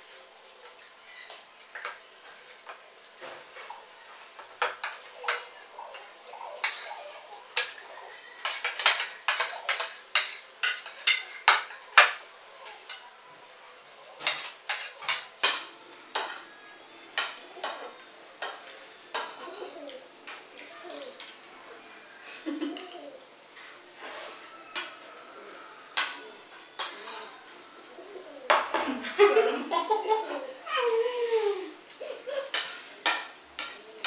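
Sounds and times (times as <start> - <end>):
spoons clinking on plates: 4.3 - 16.3, 26.0 - 27.4, 32.4 - 33.9
thin high squeal: 6.3 - 11.4, 12.0 - 16.0.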